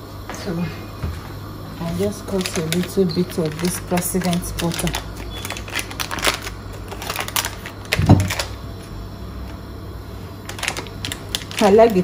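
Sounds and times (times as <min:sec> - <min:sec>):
foil wrapper crinkling: 0:01.8 - 0:08.6, 0:10.4 - 0:12.0.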